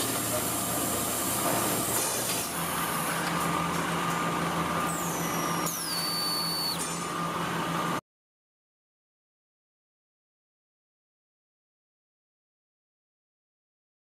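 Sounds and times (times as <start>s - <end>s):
machinery humming: 0.0s - 8.0s
high whines falling in pitch: 4.9s - 7.0s.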